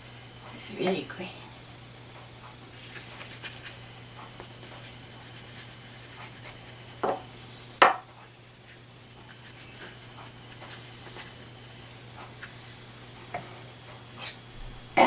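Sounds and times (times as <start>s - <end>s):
electrical hum: 0.0s - 15.0s
paintbrush tapping on paper: 7.0s - 7.2s.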